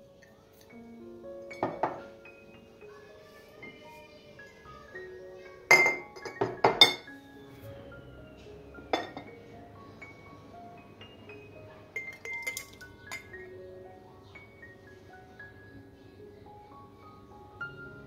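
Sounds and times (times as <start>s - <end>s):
soft background music: 0.0s - 18.0s
glass jars clinking: 1.5s - 2.2s, 5.7s - 7.1s, 8.9s - 9.4s, 12.0s - 13.4s.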